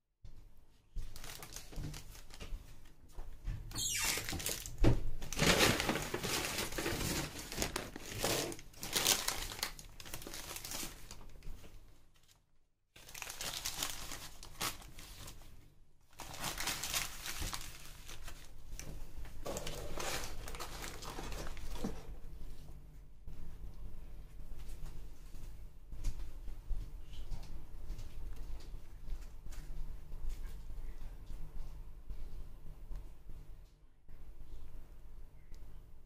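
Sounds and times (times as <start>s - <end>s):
paper food wrapper crinkling: 1.0s - 2.9s, 3.8s - 12.4s, 13.0s - 15.5s, 16.1s - 22.1s.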